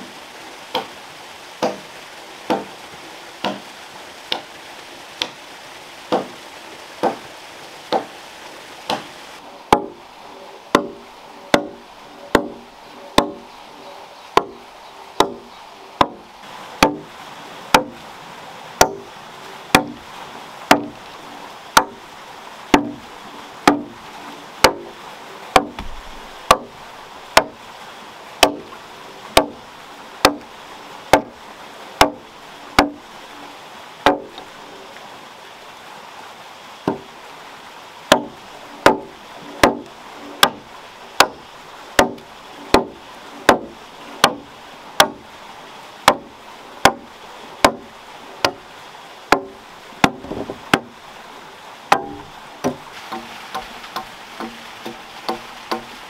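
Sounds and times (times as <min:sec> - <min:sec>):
axe chopping into log: 0:01.6 - 0:01.8, 0:02.5 - 0:02.7, 0:03.4 - 0:03.6, 0:06.1 - 0:06.4, 0:07.0 - 0:07.2, 0:08.9 - 0:09.1, 0:09.7 - 0:09.9, 0:10.7 - 0:12.6, 0:13.2 - 0:13.4, 0:15.2 - 0:15.4, 0:16.0 - 0:16.2, 0:16.8 - 0:17.0, 0:18.8 - 0:19.0, 0:19.7 - 0:20.0, 0:20.7 - 0:20.9, 0:22.7 - 0:23.0, 0:23.6 - 0:23.9, 0:25.6 - 0:26.7, 0:28.4 - 0:28.6, 0:38.1 - 0:38.3, 0:38.9 - 0:39.8, 0:40.4 - 0:40.6, 0:42.0 - 0:42.9, 0:43.5 - 0:44.4, 0:46.1 - 0:47.0, 0:47.6 - 0:48.6, 0:49.3 - 0:50.9, 0:51.9 - 0:55.9.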